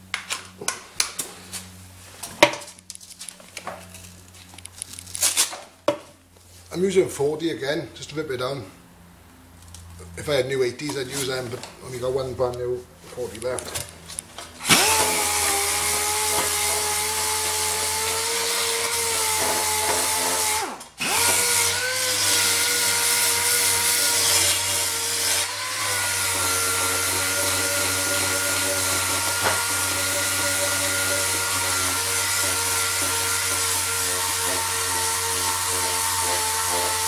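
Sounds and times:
air sander whining: 14.2 - 37.0.

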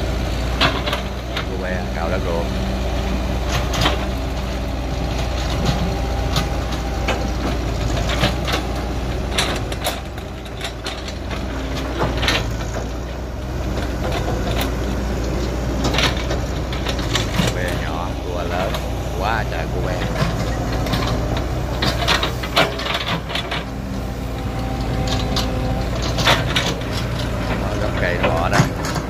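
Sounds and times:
excavator diesel engine running: 0.0 - 29.0
excavator bucket knocks and clanks: 0.5 - 1.5, 18.4 - 24.0, 24.6 - 29.0.

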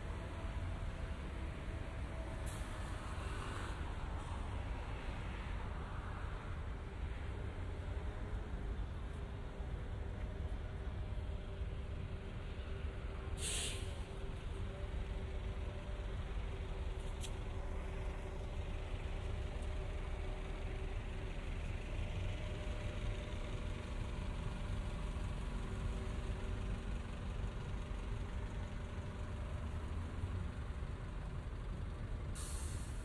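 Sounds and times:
city street traffic hum: 0.0 - 33.0
engines idling: 7.6 - 33.0
short hiss: 13.4 - 14.0, 32.4 - 33.0.

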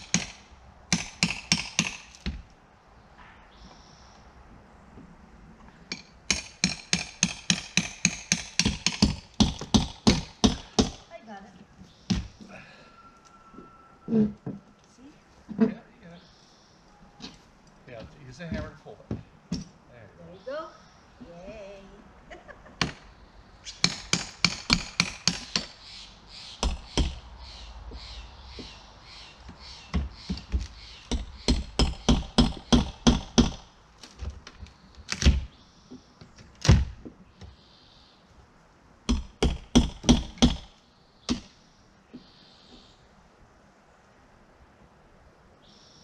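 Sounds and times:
hammer striking wood siding: 0.0 - 2.5, 5.9 - 11.1, 22.8 - 23.0, 23.7 - 25.8, 26.6 - 27.2, 29.5 - 35.5, 36.6 - 37.2, 39.1 - 42.2.

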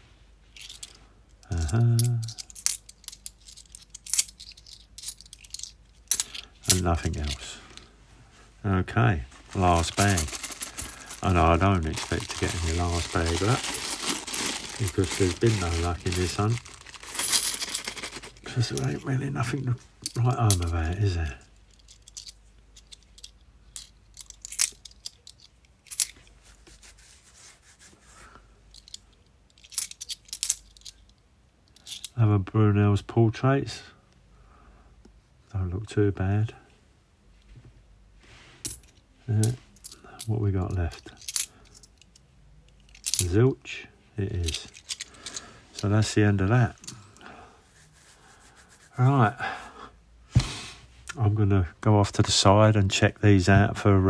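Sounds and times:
coins clicking together: 0.6 - 6.8, 17.1 - 18.2
coins clinking: 1.5 - 7.4, 9.5 - 19.1.

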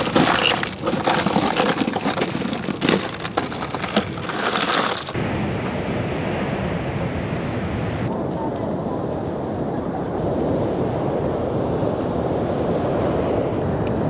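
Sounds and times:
crushed ice crunching: 0.0 - 5.2.

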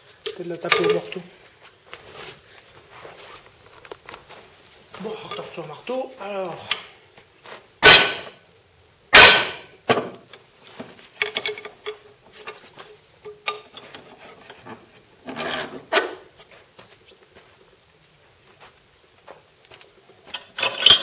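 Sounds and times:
metallic clinks and scraping: 11.2 - 12.6, 13.2 - 16.6, 20.2 - 21.0
metal clatter: 20.3 - 21.0.

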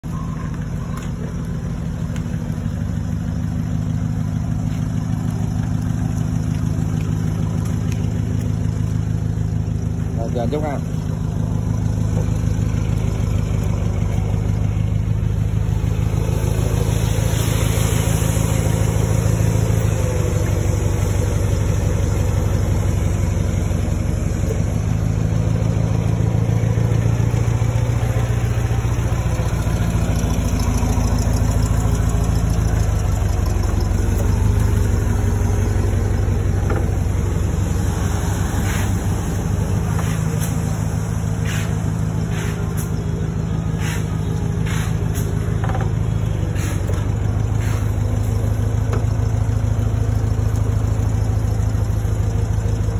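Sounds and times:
forklift engine running: 0.0 - 52.9.

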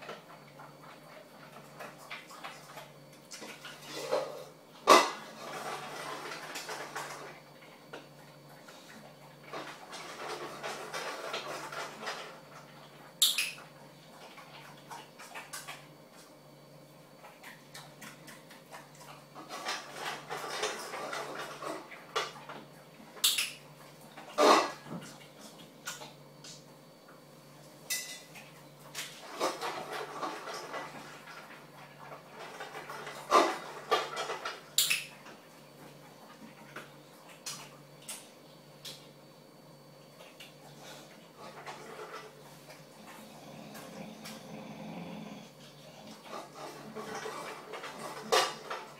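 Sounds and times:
dog chewing and snuffling: 40.4 - 48.9.

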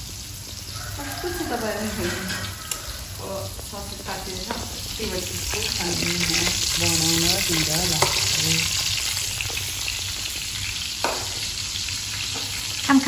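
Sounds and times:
sausages sizzling in a frying pan: 0.0 - 13.0
spatula turning sausages: 0.0 - 13.0.

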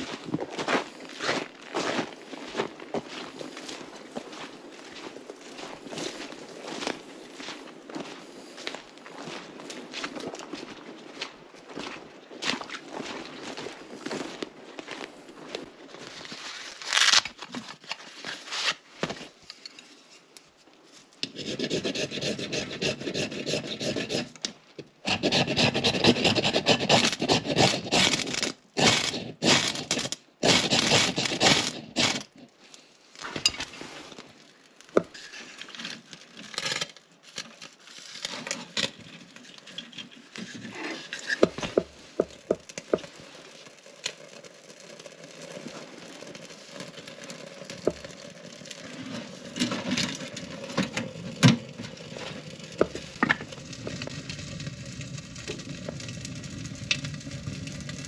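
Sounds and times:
tinder crackling: 12.6 - 21.2, 23.0 - 58.0
ferro rod scraping: 21.2 - 24.4, 25.0 - 32.4, 37.9 - 43.1.

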